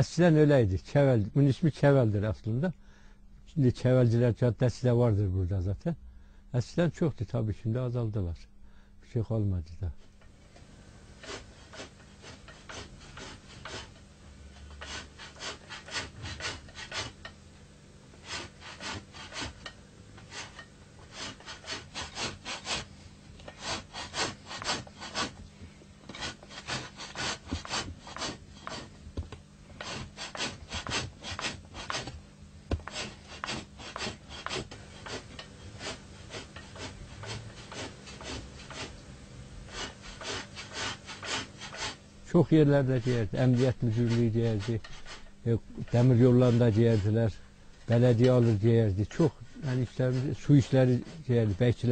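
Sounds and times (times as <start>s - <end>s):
steady low hum: 0.0s - 51.9s
metal blade scraping hide: 11.2s - 17.4s, 18.2s - 25.4s, 32.8s - 39.0s, 42.9s - 47.2s.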